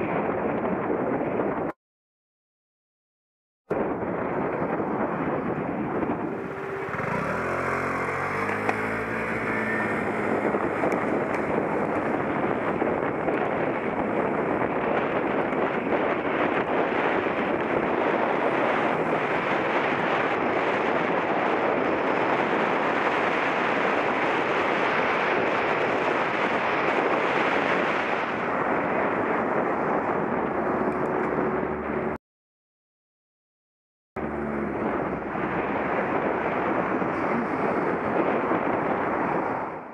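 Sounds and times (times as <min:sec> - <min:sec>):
wind rush on microphone: 0:00.0 - 0:01.8, 0:03.7 - 0:32.2, 0:34.2 - 0:39.9
bicycle tyre and road noise: 0:03.8 - 0:32.2, 0:34.2 - 0:39.9
passing vehicle engine: 0:06.2 - 0:12.5.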